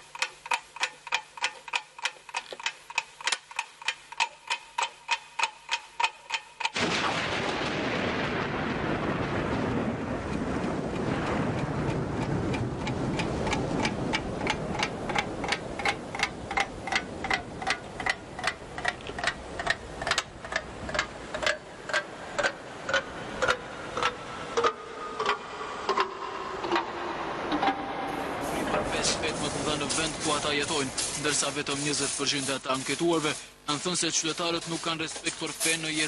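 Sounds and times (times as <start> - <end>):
steady ticking: 0.0 - 7.0, 8.3 - 28.0, 28.7 - 36.0
low rushing noise: 6.8 - 33.2.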